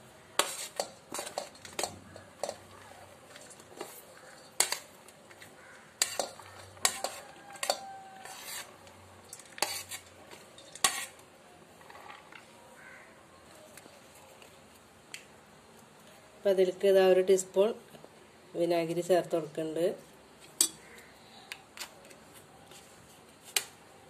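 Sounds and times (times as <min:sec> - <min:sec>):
vegetables scraped into bowl: 0:00.4 - 0:02.6, 0:06.0 - 0:11.2
spoon clinking against metal bowl: 0:06.0 - 0:08.0, 0:20.6 - 0:20.8.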